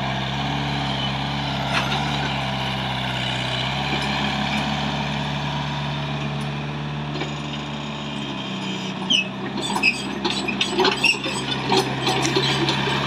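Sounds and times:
diesel engine running: 0.0s - 13.0s
short squeaks: 7.2s - 13.0s.

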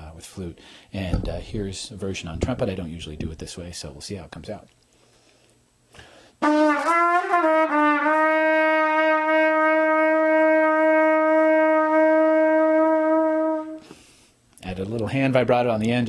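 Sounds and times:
trumpet long note with vibrato: 6.4s - 13.9s.

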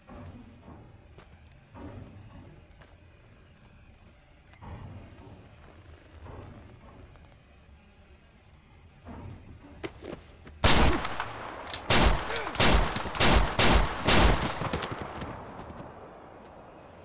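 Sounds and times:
gunshots ringing out: 10.6s - 16.2s.

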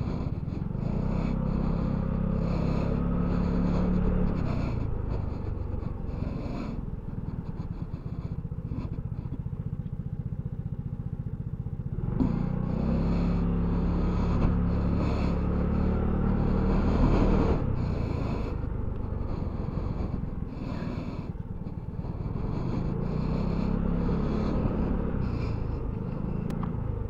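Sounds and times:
scooter engine pulling away: 0.0s - 27.0s.

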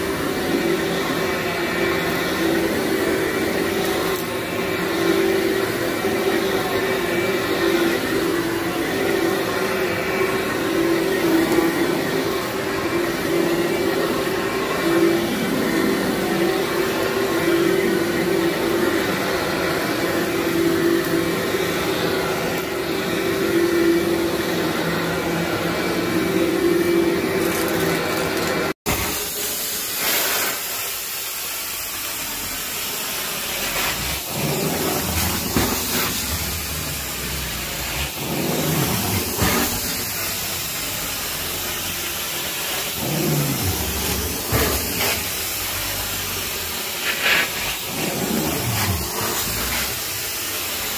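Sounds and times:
extraction wand hissing and sucking: 0.0s - 28.2s, 32.7s - 50.9s
carpet machine motor hum: 0.0s - 28.7s, 34.0s - 50.9s.

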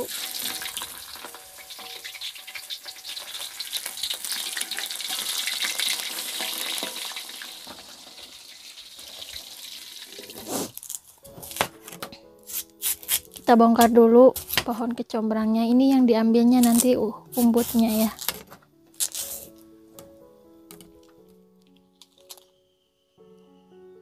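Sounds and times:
fish frying in oil: 0.0s - 10.8s.

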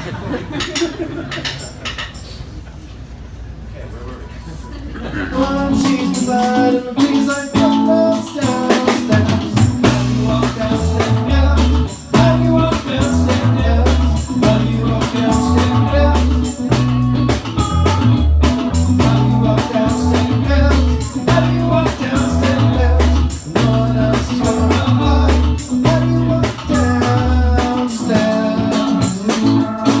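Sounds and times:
man singing: 5.2s - 17.0s, 18.4s - 30.0s
electric bass line: 5.4s - 30.0s
live band playing: 5.4s - 30.0s.

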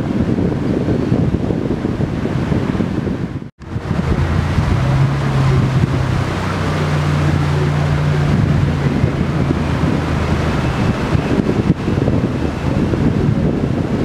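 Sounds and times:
wind buffeting microphone: 0.0s - 14.0s
high engine whine: 3.3s - 14.0s
jet engines humming: 3.6s - 14.0s.

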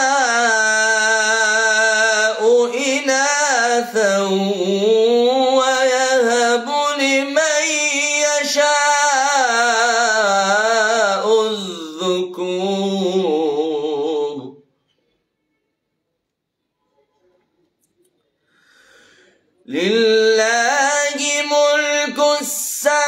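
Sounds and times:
man reciting melodically: 0.0s - 14.7s, 19.6s - 23.0s.

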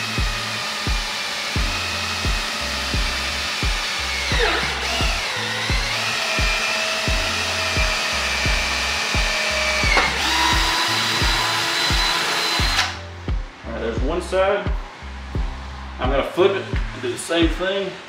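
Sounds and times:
cordless drill boring plastic: 0.0s - 13.0s
background music with beat: 0.0s - 17.7s.

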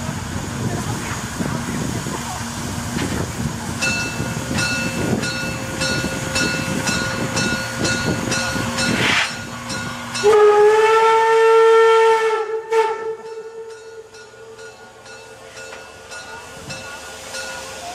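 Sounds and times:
steam hissing: 0.0s - 10.5s
steam whistle blast: 10.2s - 13.8s.

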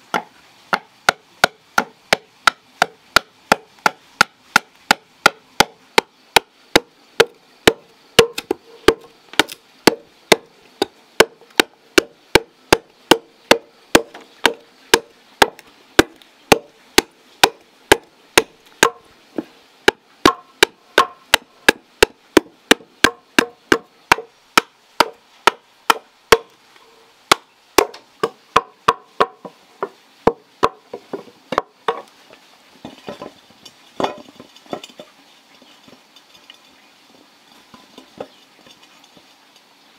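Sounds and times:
blade chopping wood: 0.1s - 19.0s, 19.9s - 26.5s, 27.3s - 29.4s.

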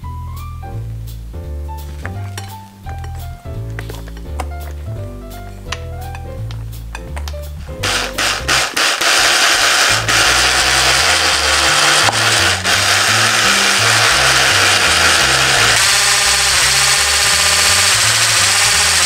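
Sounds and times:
electric hand mixer whisking: 7.8s - 19.0s.

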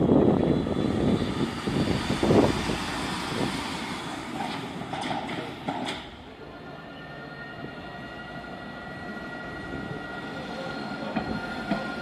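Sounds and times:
wind buffeting microphone: 0.0s - 4.2s
metro train running past: 0.0s - 12.0s.

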